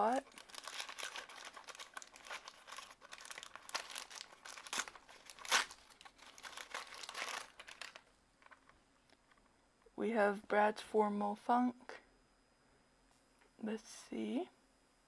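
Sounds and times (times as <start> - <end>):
wrapper tearing: 0.0 - 8.7
plastic wrapper rustling and crackling: 0.0 - 9.4.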